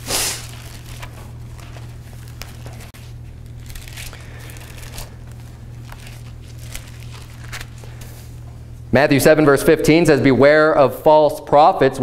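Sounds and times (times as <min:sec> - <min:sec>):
steady low hum: 0:00.0 - 0:12.0
paper pages rustling: 0:00.2 - 0:08.4.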